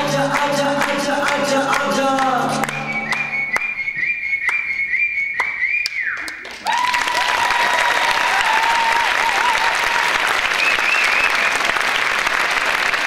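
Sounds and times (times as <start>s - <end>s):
song with whistle-like tone: 2.4s - 6.5s, 10.6s - 11.6s
held whistling tone: 2.6s - 6.5s, 10.6s - 11.6s
audience applause: 6.2s - 13.0s.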